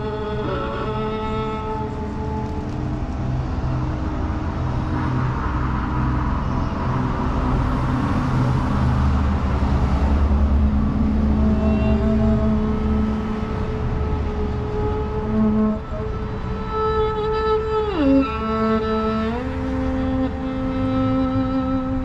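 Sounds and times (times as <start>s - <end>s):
violin notes: 0.0s - 5.0s, 9.9s - 22.0s
vehicle passing: 0.0s - 22.0s
flute notes: 11.1s - 18.6s.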